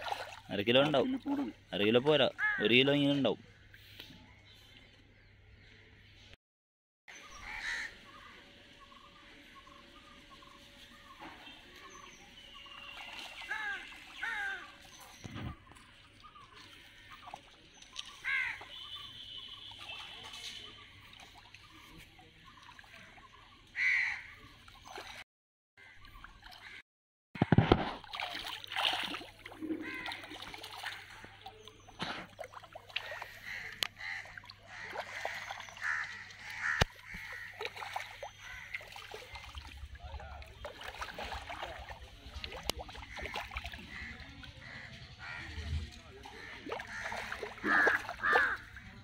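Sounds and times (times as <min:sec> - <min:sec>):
fish splashing in water: 0:00.0 - 0:01.6, 0:12.5 - 0:25.2, 0:27.5 - 0:49.0
bird calls: 0:07.1 - 0:25.2, 0:29.6 - 0:41.9.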